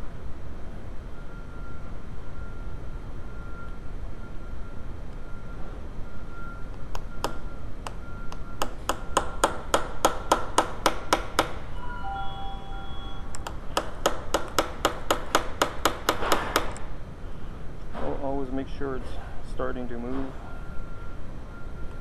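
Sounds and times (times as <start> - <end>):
hammer tapping on metal punch: 6.9 - 11.6, 13.3 - 16.9.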